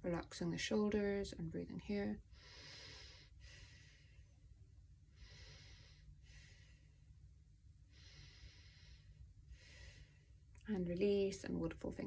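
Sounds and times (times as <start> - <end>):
woman breathing slowly: 2.2 - 10.6.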